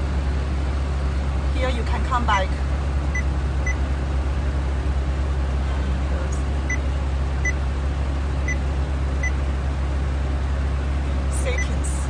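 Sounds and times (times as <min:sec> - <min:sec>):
steady low car hum: 0:00.0 - 0:12.0.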